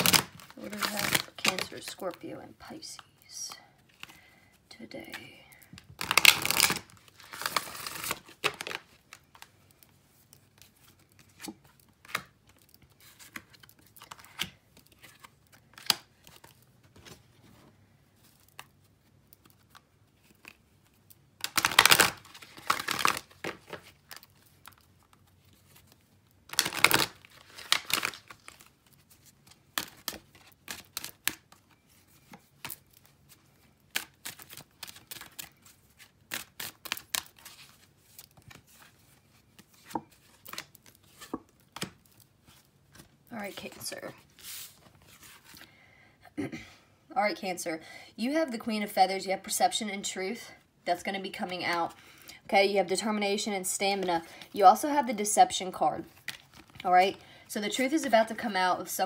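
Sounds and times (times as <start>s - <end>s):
cards shuffling and rustling: 0.0s - 3.1s, 4.9s - 45.7s, 56.0s - 58.0s.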